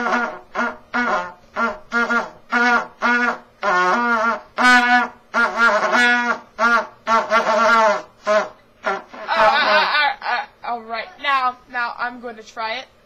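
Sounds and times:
trumpet notes wavering: 0:00.0 - 0:10.0.

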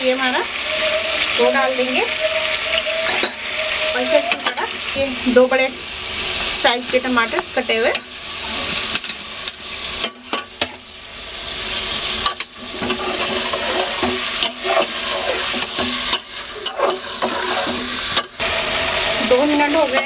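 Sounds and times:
food sizzling in hot oil: 0:00.0 - 0:20.0
spatula scraping and clinking on pot: 0:12.3 - 0:18.3.

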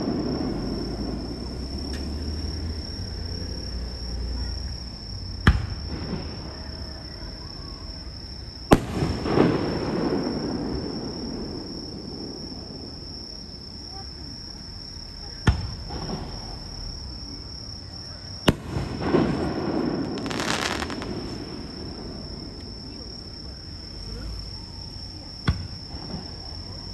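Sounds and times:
fireworks bangs with rolling rumble: 0:00.0 - 0:02.1, 0:05.4 - 0:07.6, 0:08.6 - 0:13.4, 0:15.2 - 0:24.0, 0:25.1 - 0:26.9
crackling firework burst: 0:00.0 - 0:02.3, 0:08.6 - 0:13.0, 0:18.3 - 0:23.2
crickets chirping: 0:00.0 - 0:26.9.

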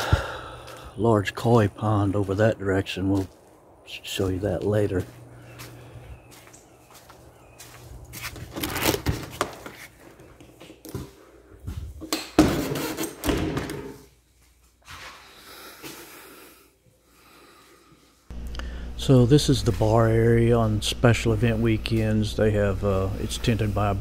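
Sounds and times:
door opening and shutting: 0:12.0 - 0:14.0.

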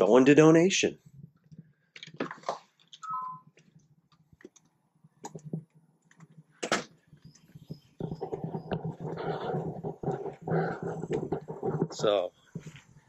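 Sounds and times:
rough steady noise: 0:08.0 - 0:12.8.

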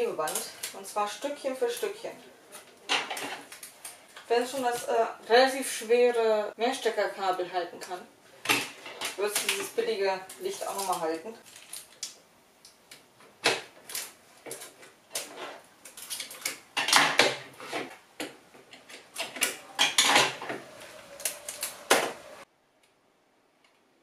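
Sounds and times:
adhesive tape peeling: 0:20.6 - 0:22.4.

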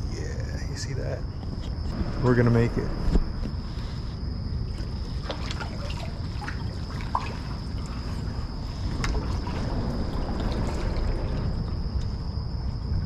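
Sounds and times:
low steady rumble: 0:00.0 - 0:13.0
water trickling and dripping: 0:04.6 - 0:13.0
small splashes: 0:04.7 - 0:12.2.

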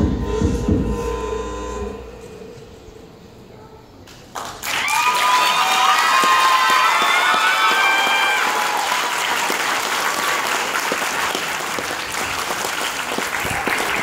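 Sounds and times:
audience applauding: 0:04.1 - 0:14.0.

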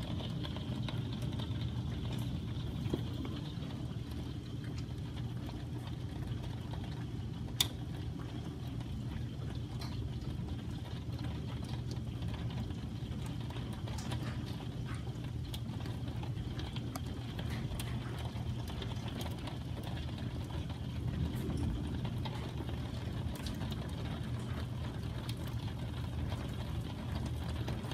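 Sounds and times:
hailstones ticking: 0:00.0 - 0:27.9
heavy rain rushing: 0:19.9 - 0:27.9.

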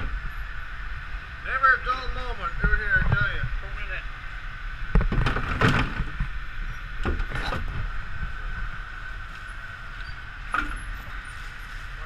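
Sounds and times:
boat engine drone: 0:00.0 - 0:12.0
winch knocks and clunks: 0:04.9 - 0:06.3, 0:07.0 - 0:07.8.

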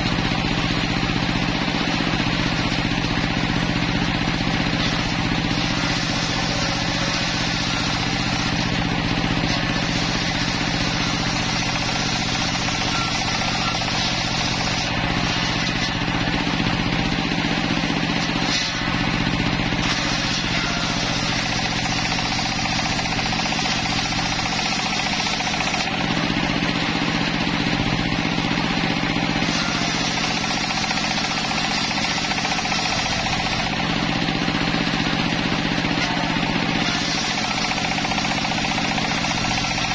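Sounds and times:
circular saw blade cutting timber: 0:00.0 - 0:39.9
engine running: 0:00.0 - 0:39.9.

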